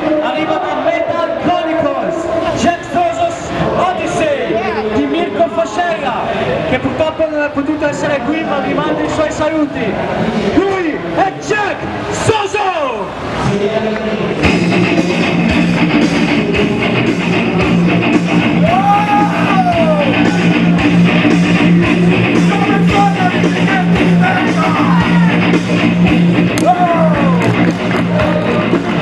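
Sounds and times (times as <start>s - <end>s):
rock music with electric guitar: 14.4s - 29.0s.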